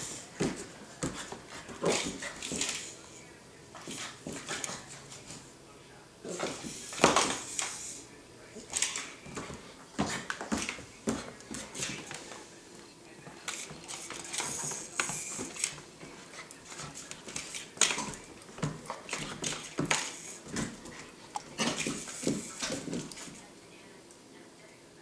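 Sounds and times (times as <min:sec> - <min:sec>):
dog claws clicking on floor: 0:08.7 - 0:12.2.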